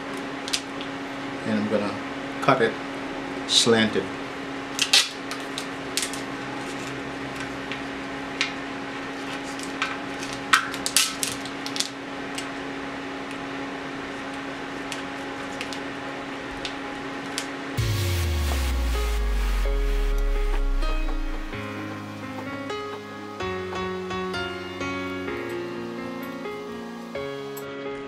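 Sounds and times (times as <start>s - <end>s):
steady low hum: 17.8s - 23.4s.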